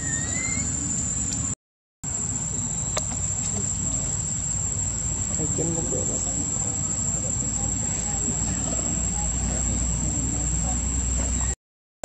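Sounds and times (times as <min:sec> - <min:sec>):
short rising chirp: 0:00.0 - 0:01.4
insects droning: 0:00.0 - 0:11.6.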